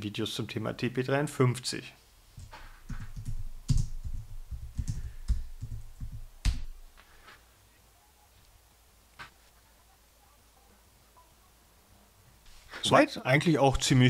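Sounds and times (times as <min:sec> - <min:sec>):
typing on computer keyboard: 0:02.4 - 0:06.7.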